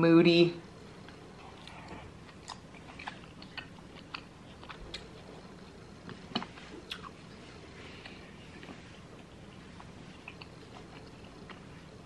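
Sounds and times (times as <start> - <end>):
chewing mouth sounds: 1.0 - 5.3, 6.1 - 7.2, 8.0 - 11.8.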